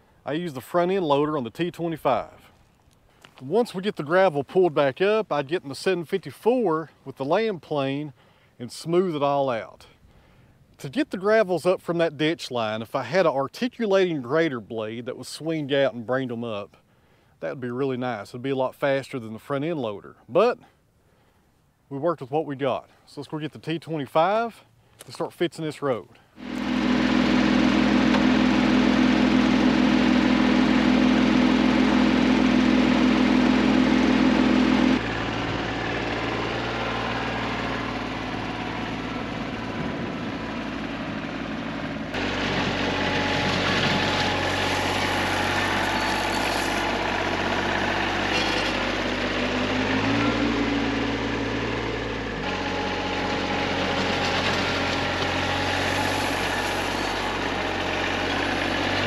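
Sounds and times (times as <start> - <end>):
tractor diesel engine running: 26.4 - 59.0.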